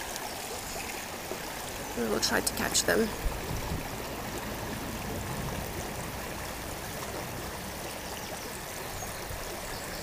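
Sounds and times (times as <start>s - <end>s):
river water flowing: 0.0s - 10.0s.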